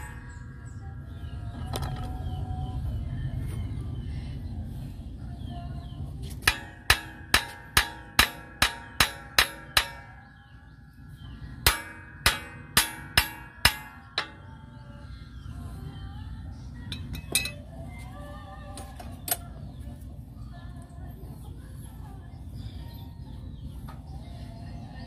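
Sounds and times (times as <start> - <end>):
hammer striking metal: 0.0 - 0.8, 6.4 - 10.6, 11.2 - 14.6.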